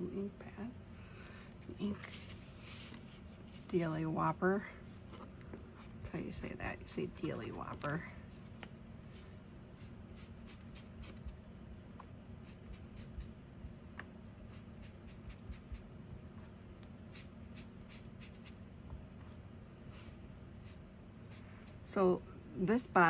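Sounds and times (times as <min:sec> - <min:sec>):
ink pad dabbing on paper: 0:09.8 - 0:11.3, 0:12.4 - 0:13.3, 0:14.4 - 0:15.8, 0:17.1 - 0:18.6.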